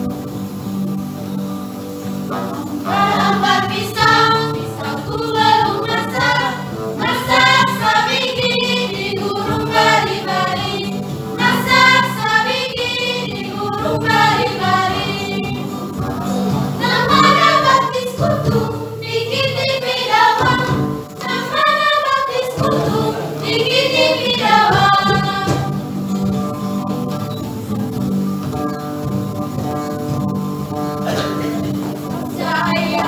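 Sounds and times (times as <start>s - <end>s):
choir of women singing: 2.3s - 25.9s, 32.1s - 33.0s.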